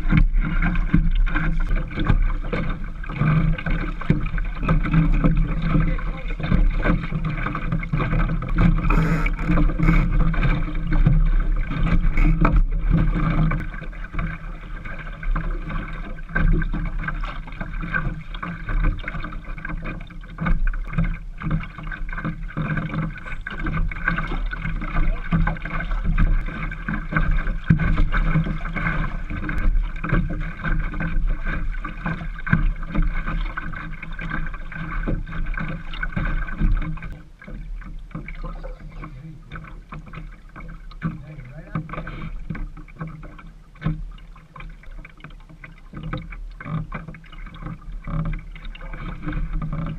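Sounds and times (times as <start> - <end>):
wind rumble on microphone: 0.0 - 37.2
light knocks from boat: 0.0 - 49.9
water lapping against boat hull: 0.0 - 49.9.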